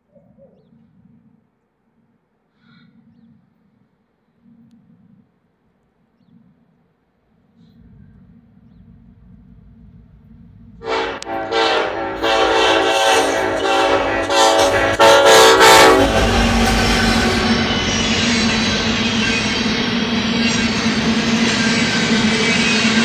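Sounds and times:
clickety-clack of wheels on rail: 0:07.8 - 0:23.0
train rumbling past: 0:07.8 - 0:23.0
locomotive air horn blasts: 0:10.8 - 0:19.2.

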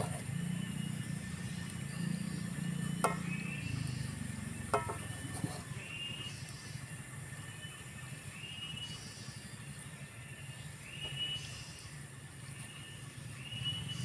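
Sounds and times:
cicadas buzzing: 0:00.0 - 0:14.0
low steady hum: 0:00.0 - 0:14.0.

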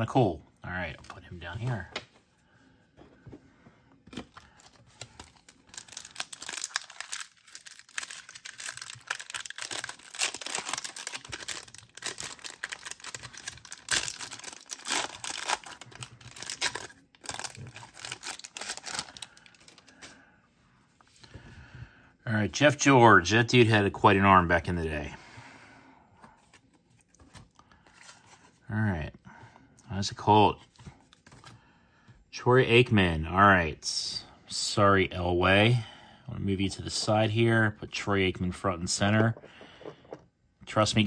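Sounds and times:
foil wrapper crinkling and tearing: 0:04.2 - 0:20.1.

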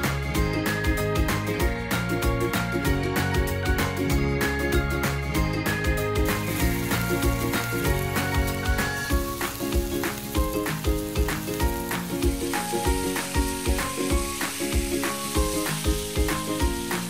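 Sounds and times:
background music with beat: 0:00.0 - 0:17.0
dumplings sizzling in oil: 0:05.6 - 0:17.0.

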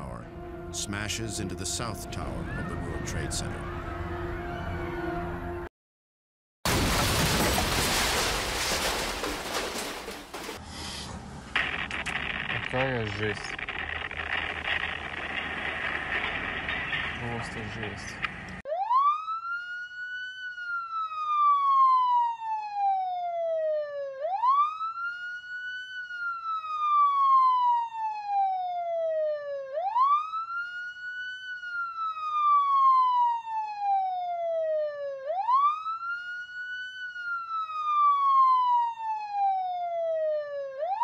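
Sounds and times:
siren wailing: 0:00.0 - 0:05.6, 0:18.7 - 0:41.0.

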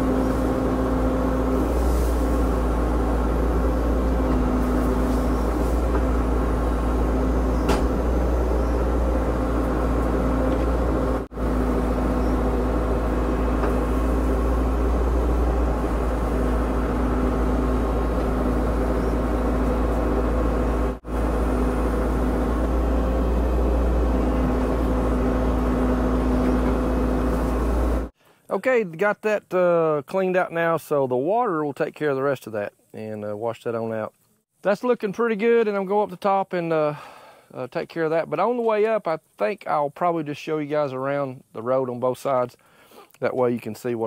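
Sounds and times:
excavator diesel engine running: 0:00.0 - 0:28.2.

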